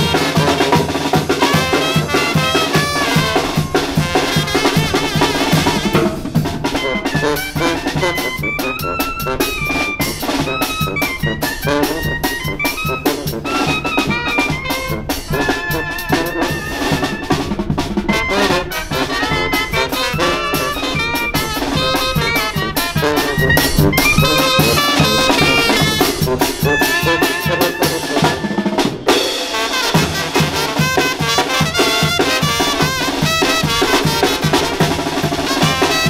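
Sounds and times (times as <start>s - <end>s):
bass drum with cymbal: 0.0s - 8.1s
brass band playing: 0.0s - 36.0s.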